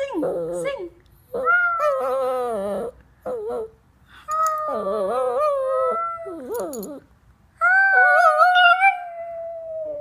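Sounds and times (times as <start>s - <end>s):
small dog howling: 7.6s - 10.0s.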